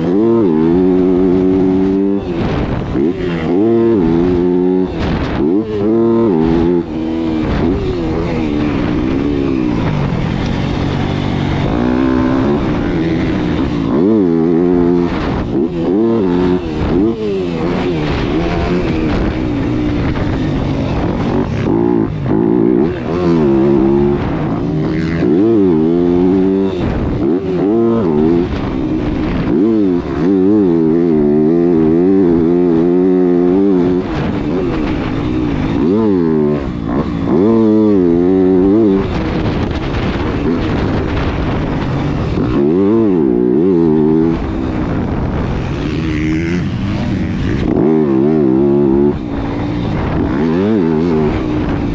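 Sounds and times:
motocross bike engine revving: 0.0s - 51.9s.

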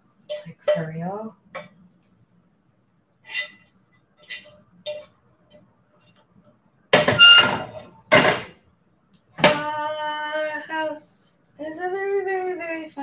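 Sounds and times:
dishes or pans clanking: 4.2s - 5.2s.

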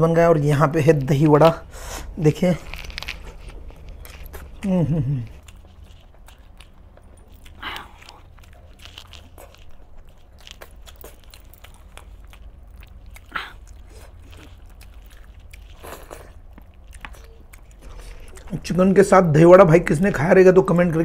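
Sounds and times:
low steady hum: 0.0s - 21.0s
man chewing food: 0.4s - 21.0s.

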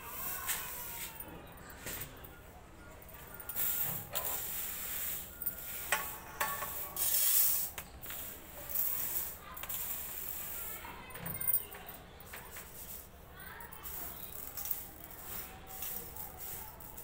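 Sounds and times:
dry lentils rattling on metal plate: 3.4s - 17.0s.

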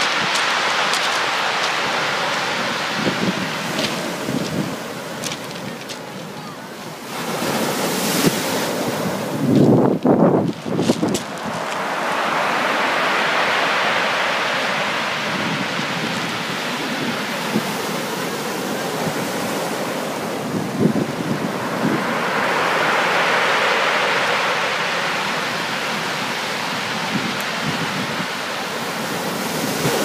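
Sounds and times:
surf washing up pebble beach: 0.0s - 30.0s.

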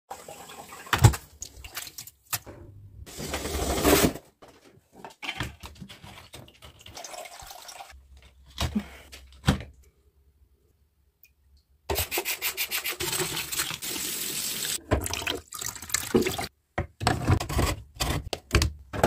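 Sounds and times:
water running into plastic tray: 5.2s - 7.9s, 13.0s - 16.5s.

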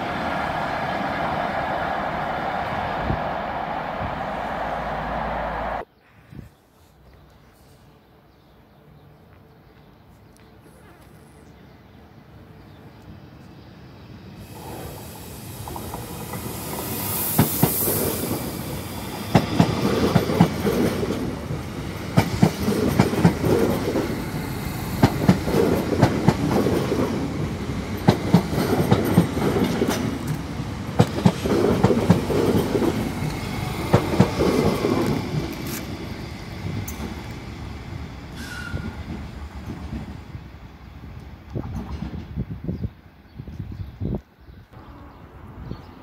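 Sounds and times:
train rumble: 0.0s - 5.9s, 13.8s - 42.6s
train wheels clacking over rail joints: 22.1s - 24.2s.

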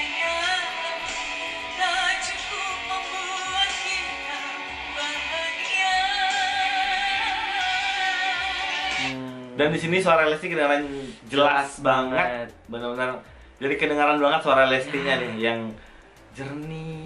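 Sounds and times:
woman singing with vibrato: 0.0s - 9.1s
musical accompaniment: 0.0s - 10.1s, 11.2s - 17.0s.

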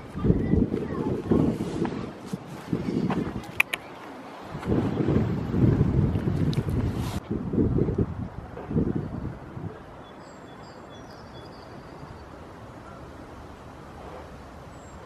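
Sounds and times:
wind buffeting microphone: 0.0s - 10.0s
faint bird chirps: 10.0s - 13.1s.

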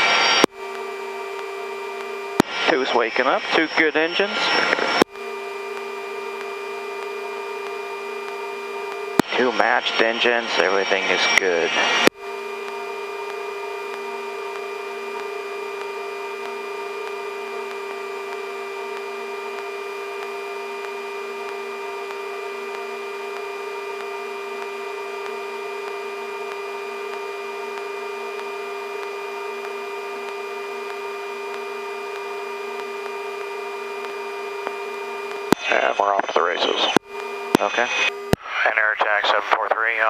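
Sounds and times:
helicopter engine whine: 0.0s - 40.0s.

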